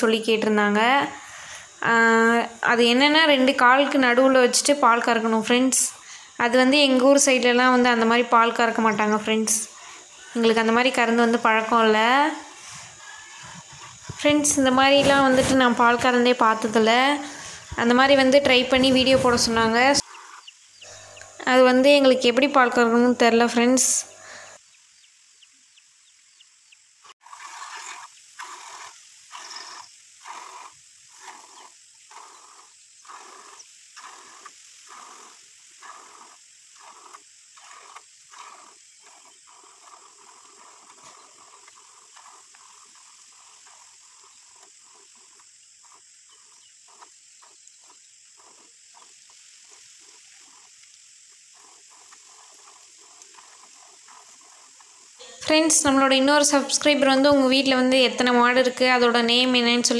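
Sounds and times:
milk squirting into bucket: 27.2 - 56.8.

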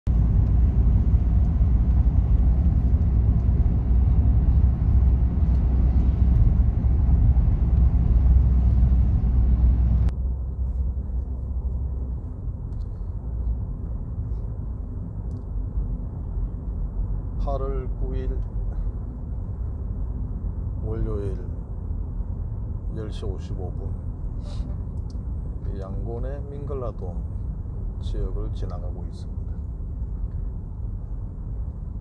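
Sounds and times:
car cabin road rumble: 0.0 - 32.0.

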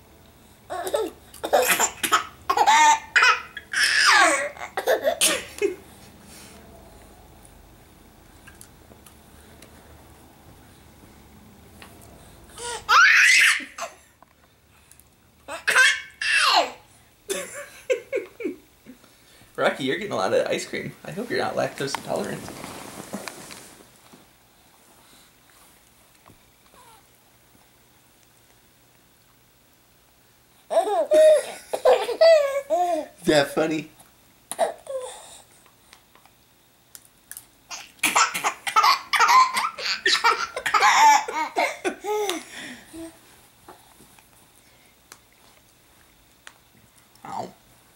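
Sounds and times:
baby laughing: 0.7 - 5.8, 12.6 - 14.0, 15.5 - 18.6, 30.7 - 33.1, 37.7 - 42.4.

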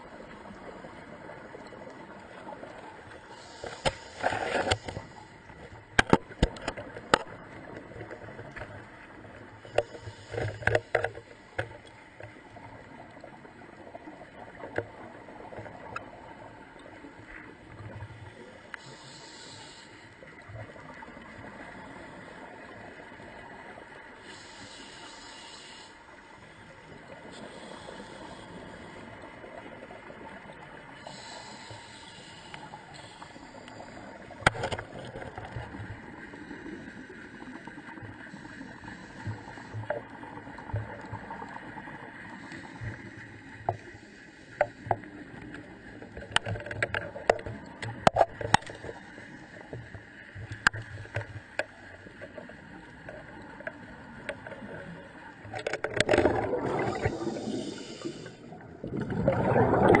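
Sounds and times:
watery hiss: 3.2 - 5.6, 9.6 - 11.6, 18.7 - 20.3, 24.2 - 26.6, 27.2 - 29.3, 31.0 - 34.8, 36.2 - 40.6, 42.2 - 45.9, 55.4 - 60.0
gurgling rush of water: 44.6 - 60.0
sharp clicks and knocks: 55.5 - 56.4.

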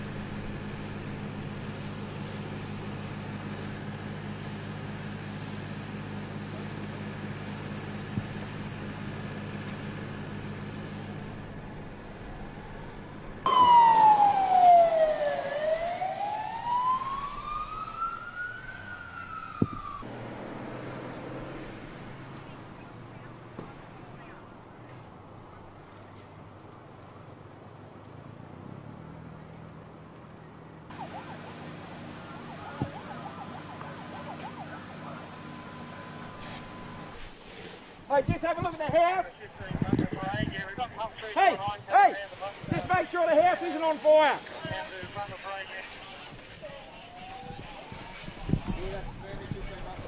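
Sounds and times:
fire engine siren wailing: 0.0 - 24.5, 30.9 - 37.5, 42.8 - 50.0
emergency siren yelping: 13.4 - 20.2, 30.9 - 37.3, 46.9 - 49.3.

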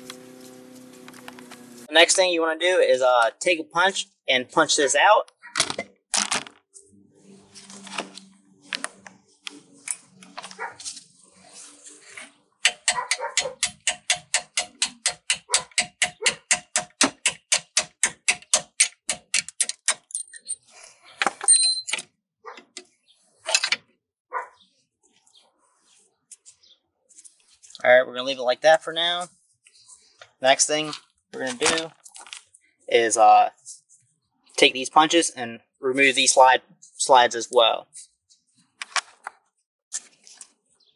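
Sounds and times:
hammer tapping metal punch: 12.6 - 20.0.

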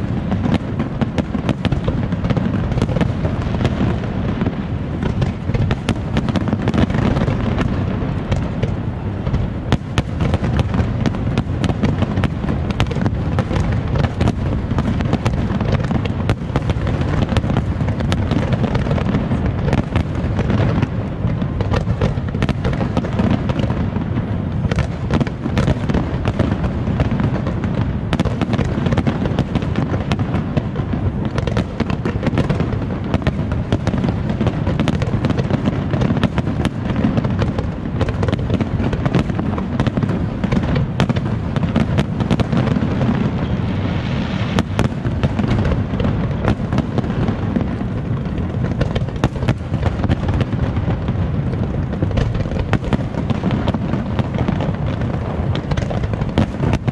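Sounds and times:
fireworks cracks and bangs: 0.0 - 56.9.

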